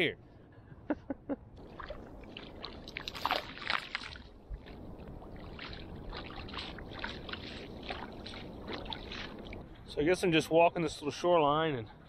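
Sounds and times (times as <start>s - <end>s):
net splashing into water: 1.6s - 9.6s
water trickling and splashing: 1.6s - 10.5s.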